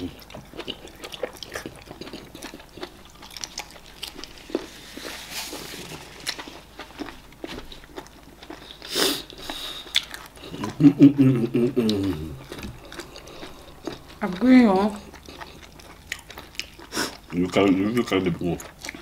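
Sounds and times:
wet chewing and lip-smacking: 0:00.0 - 0:05.0, 0:06.2 - 0:19.0
paper napkin rustling on face: 0:04.3 - 0:06.6.

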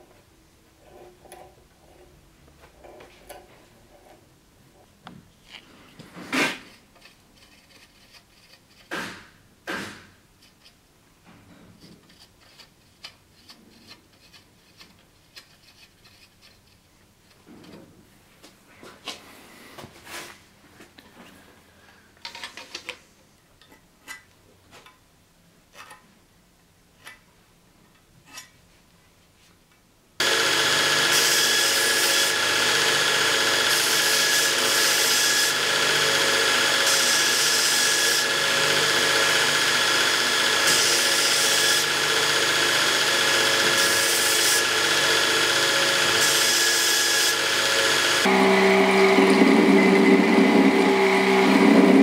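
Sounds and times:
belt grinder running: 0:30.2 - 0:52.0.

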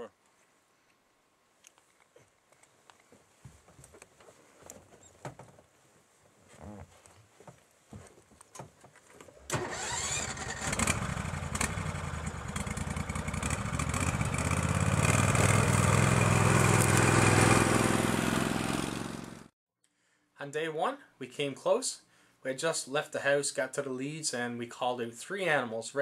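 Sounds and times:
vehicle engine starting and running: 0:09.4 - 0:19.5.

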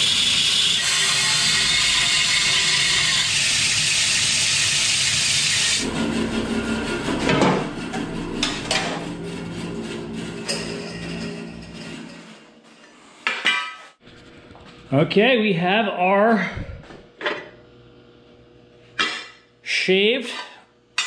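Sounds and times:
saw motor humming: 0:00.0 - 0:12.2
band saw cutting metal: 0:00.0 - 0:13.0.

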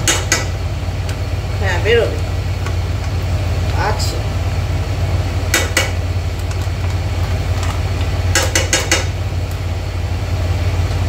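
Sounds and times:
steady low hum: 0:00.0 - 0:11.0
taps against a frying pan: 0:08.3 - 0:09.1.

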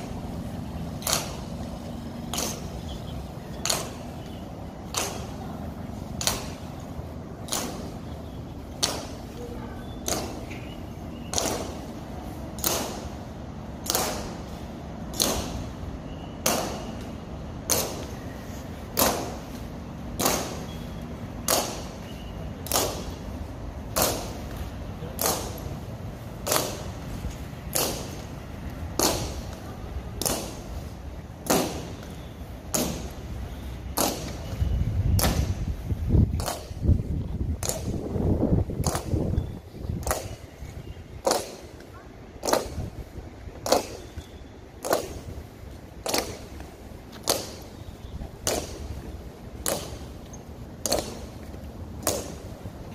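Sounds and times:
low rumbling noise: 0:00.0 - 0:52.9
boot heels striking pavement: 0:43.5 - 0:52.6.

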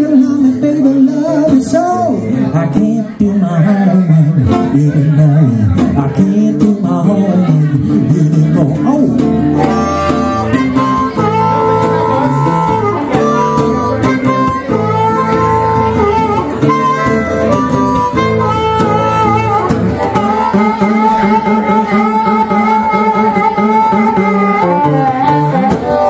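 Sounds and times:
strummed acoustic guitar: 0:00.0 - 0:26.0
harmonica long notes: 0:08.7 - 0:26.0.

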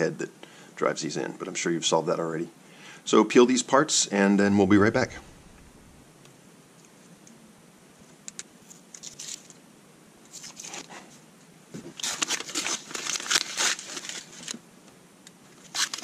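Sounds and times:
paper masking peeling off plastic: 0:12.0 - 0:14.6, 0:15.6 - 0:16.0.

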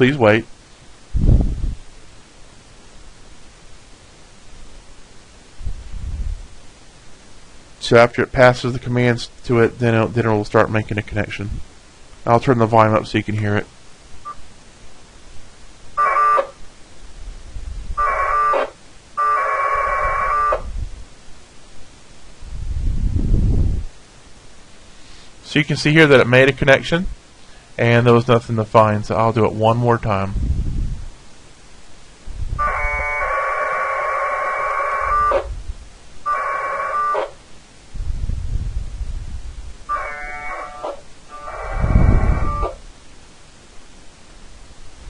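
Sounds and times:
two-tone radio data bursts: 0:16.0 - 0:16.6, 0:18.0 - 0:20.7, 0:32.6 - 0:35.5, 0:36.3 - 0:37.4, 0:39.9 - 0:42.8.

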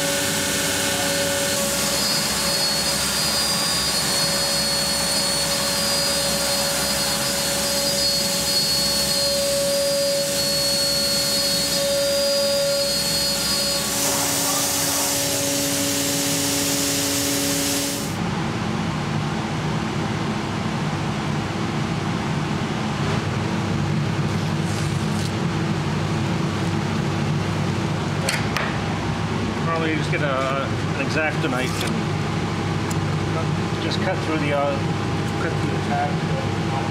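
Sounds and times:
router hiss with whining tones: 0:00.0 - 0:18.2.

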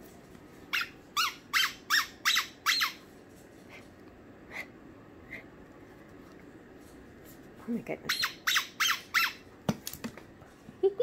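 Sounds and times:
dog toy squeaking: 0:00.7 - 0:03.0, 0:08.1 - 0:09.4.

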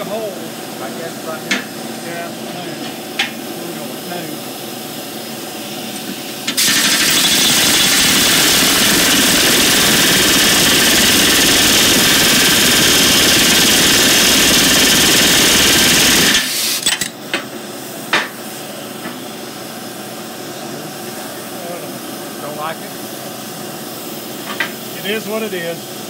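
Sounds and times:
rivet gun rapid rattle: 0:06.6 - 0:16.5.

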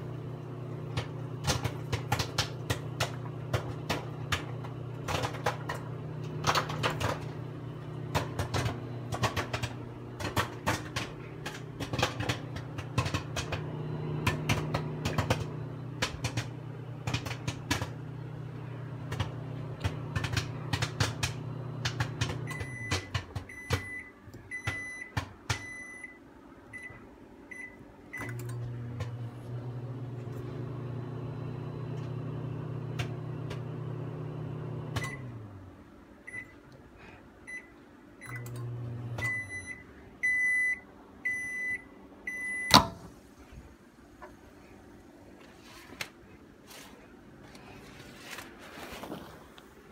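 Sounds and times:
microwave oven humming: 0:00.0 - 0:49.9
popcorn popping: 0:00.8 - 0:25.8
keypad beeps: 0:22.4 - 0:26.2, 0:39.2 - 0:42.9.

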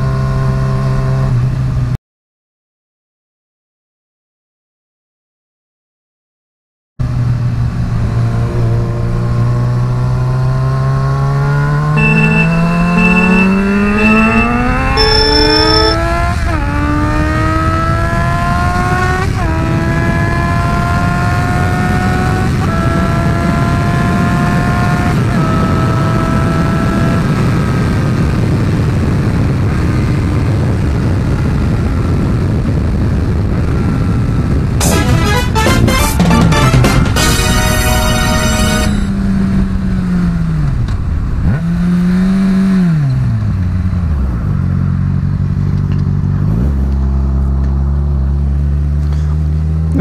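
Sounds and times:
motorcycle engine accelerating: 0:07.0 - 0:37.4, 0:38.9 - 0:50.0
steady high tone: 0:12.0 - 0:16.2, 0:34.8 - 0:39.1.

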